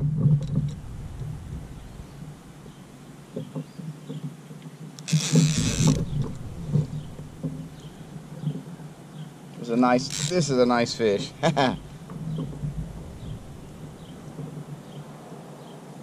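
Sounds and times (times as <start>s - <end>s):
fishing reel mechanical sounds: 5.0s - 6.0s, 10.0s - 10.6s.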